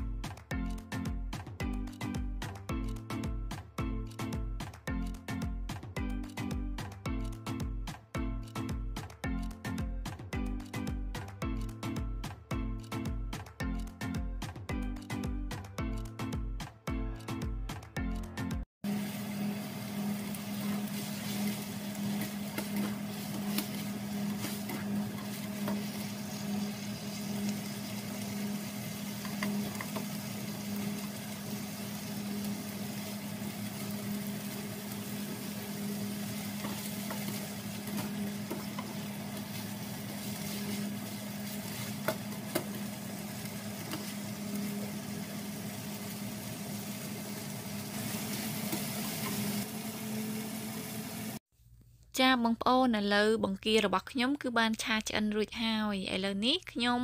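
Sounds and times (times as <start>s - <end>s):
shrimp sizzling in oil: 18.9s - 51.4s
spatula scraping and tapping pan: 20.6s - 26.1s, 36.5s - 39.6s.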